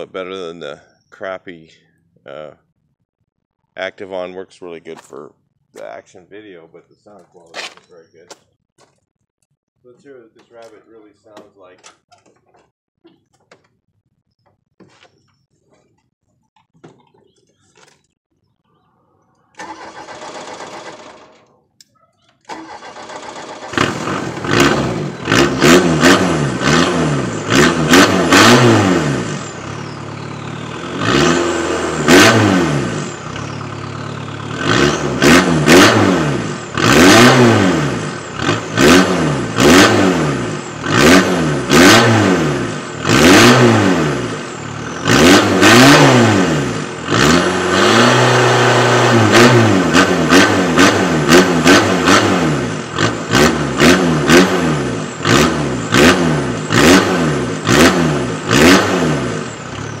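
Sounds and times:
diesel engine revving: 0:19.5 - 0:21.5, 0:22.5 - 1:00.0.

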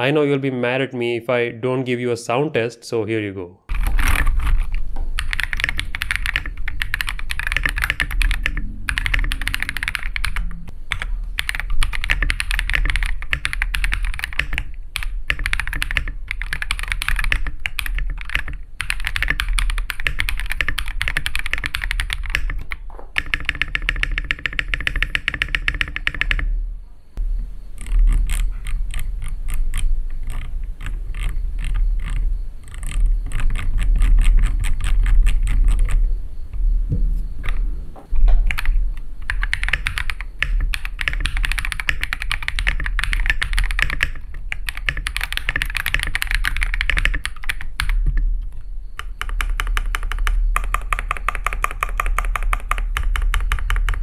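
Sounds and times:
mechanical keyboard keystroke clacks: 0:03.7 - 0:26.4, 0:38.5 - 0:48.1, 0:49.0 - 0:54.0.

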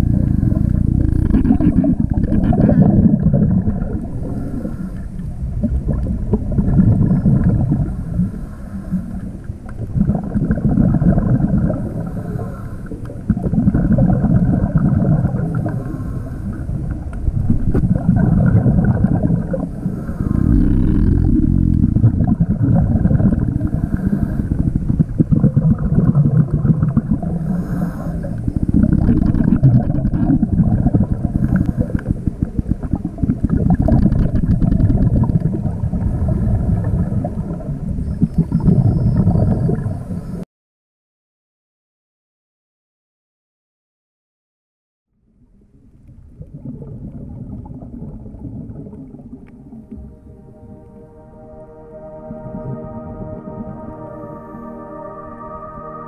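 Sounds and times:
scuba regulator exhaled bubbles: 0:00.0 - 0:40.4, 0:46.4 - 0:50.1.

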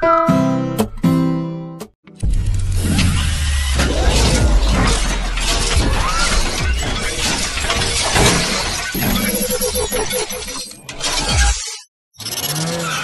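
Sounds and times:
glass shattering crackle: 0:04.0 - 0:09.2.

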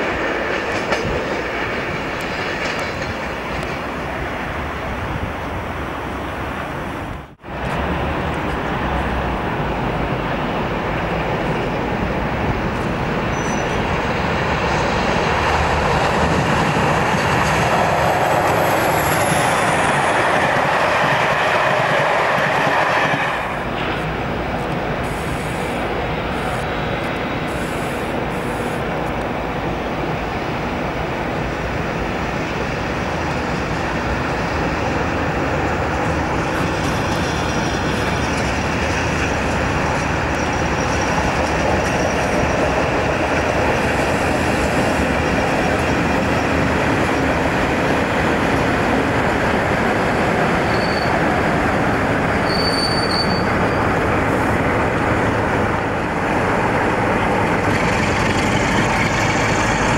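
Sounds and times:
diesel locomotive passing: 0:00.0 - 0:59.9
high wheel squeals: 0:13.3 - 0:13.9, 0:50.6 - 0:51.3, 0:52.3 - 0:54.0
wheels on rails: 0:33.6 - 0:59.9.

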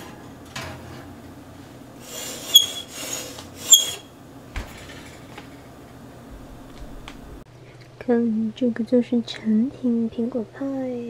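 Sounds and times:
oven rack scraping slide: 0:02.0 - 0:05.6
oven door shutting thump: 0:04.5 - 0:05.5.

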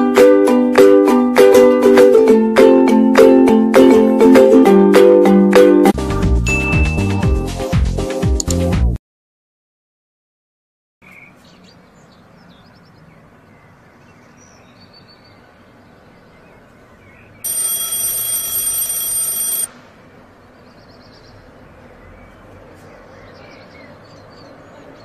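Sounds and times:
alarm clock ringing: 0:17.4 - 0:19.7.

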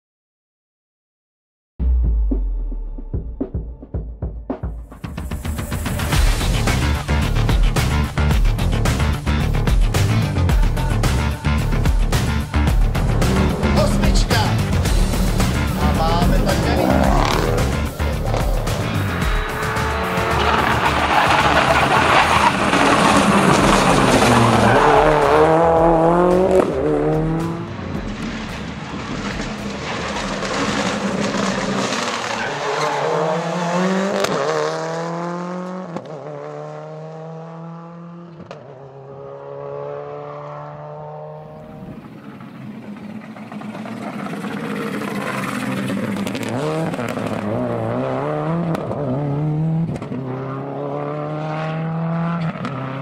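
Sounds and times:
rally car engine accelerating: 0:05.8 - 0:53.0.

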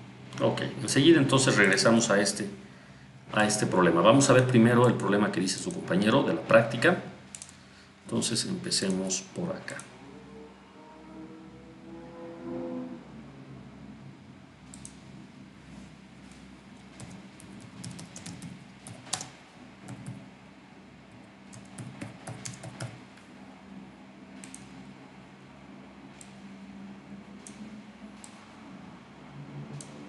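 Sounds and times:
computer keyboard typing: 0:17.0 - 0:20.2, 0:21.5 - 0:23.0.

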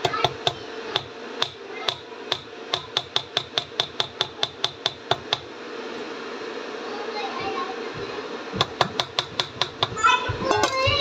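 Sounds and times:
spatula tapping metal pan: 0:00.0 - 0:05.5, 0:08.6 - 0:10.8.

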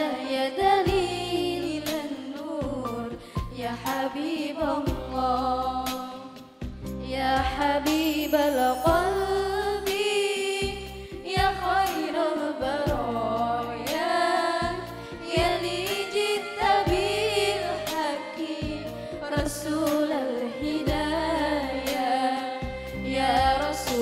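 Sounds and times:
girls singing into microphones: 0:00.0 - 0:24.0.

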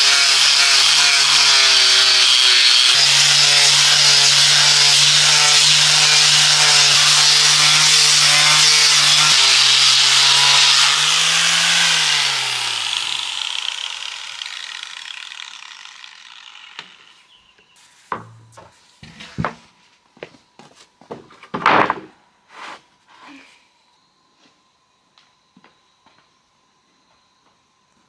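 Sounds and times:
power saw winding down: 0:00.0 - 0:17.3.

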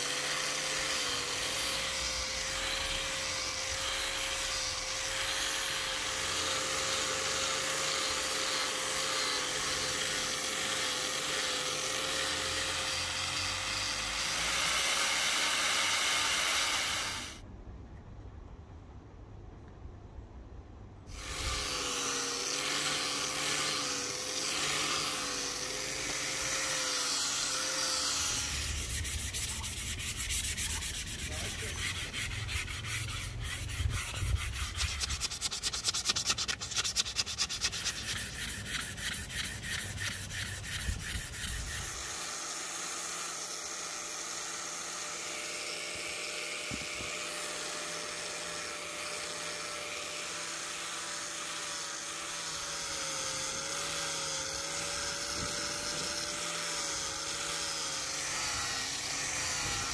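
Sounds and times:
sandpaper rubbing on wood: 0:00.0 - 0:17.4, 0:21.1 - 0:45.0.

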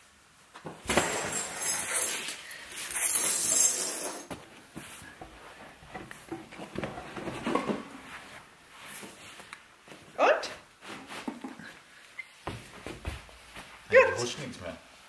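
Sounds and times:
hands rubbing rug pile: 0:08.0 - 0:11.7, 0:12.5 - 0:14.3.

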